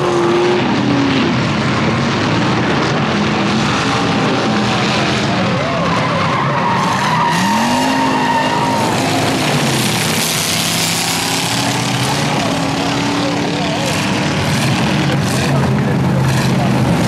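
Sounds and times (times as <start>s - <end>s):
race car engines revving: 0.0s - 17.0s.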